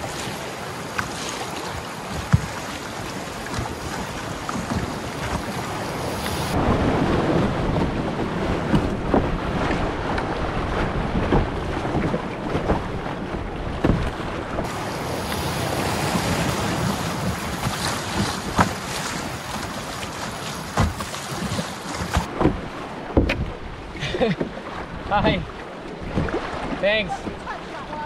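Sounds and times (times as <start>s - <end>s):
canoe knocks and splashes: 0.0s - 27.7s
rapids rushing: 14.6s - 23.2s.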